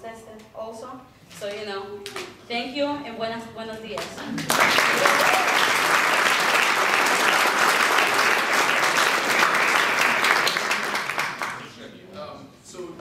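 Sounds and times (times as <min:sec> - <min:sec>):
audience applauding: 0:04.4 - 0:11.8.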